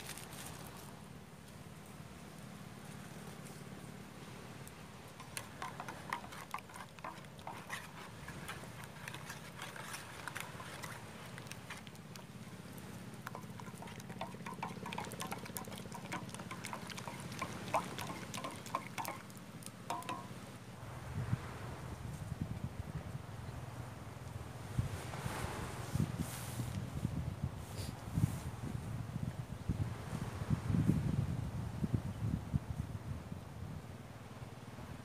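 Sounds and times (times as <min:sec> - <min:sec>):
stick tapping a steel mug: 0:05.2 - 0:12.2, 0:13.2 - 0:19.3, 0:19.9 - 0:20.4
liquid sloshing: 0:05.2 - 0:20.4.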